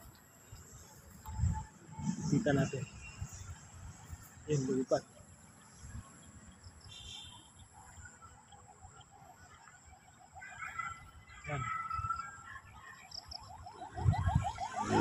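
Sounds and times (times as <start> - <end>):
faint outdoor background noise: 0.0 - 15.0
small birds chirping: 2.3 - 9.2.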